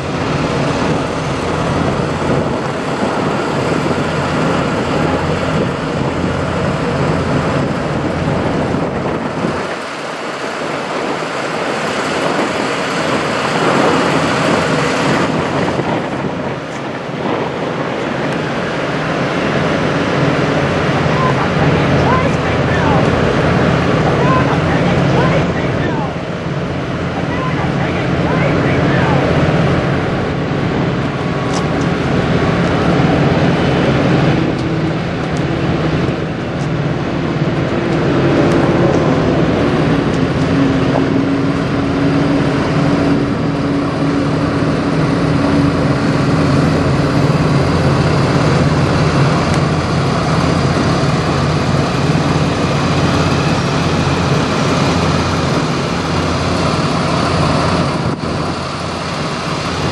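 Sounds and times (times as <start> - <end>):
truck diesel engine running: 13.0 - 59.9
traffic noise: 16.7 - 59.9.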